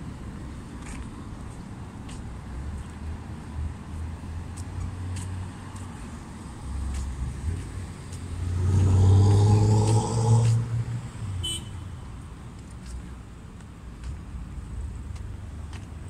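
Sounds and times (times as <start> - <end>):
car passing by: 3.0 - 11.6.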